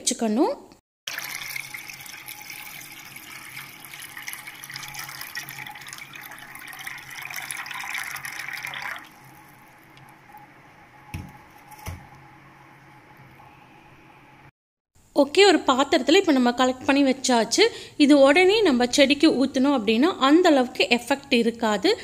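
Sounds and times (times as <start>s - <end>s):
water pouring into metal pot: 1.1s - 13.5s.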